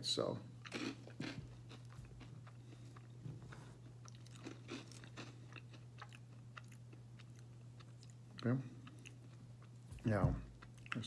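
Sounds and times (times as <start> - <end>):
low steady hum: 0.0 - 11.0
cereal crunching while chewed: 0.6 - 3.1, 4.0 - 8.2.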